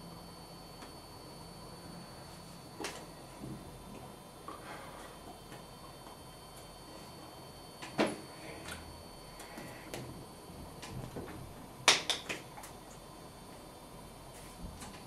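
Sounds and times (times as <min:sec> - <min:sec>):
faint steady hum: 0:00.0 - 0:15.0
hands slapping and clapping: 0:11.9 - 0:12.4.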